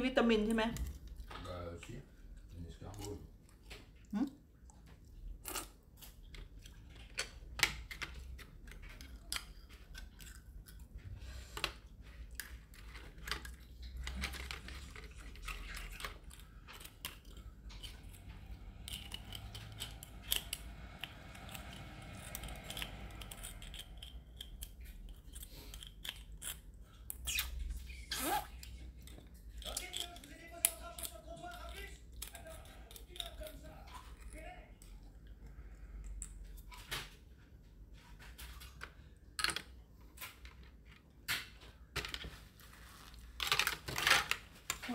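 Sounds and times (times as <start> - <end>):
snail shells clicking: 12.4 - 27.4, 28.6 - 33.6.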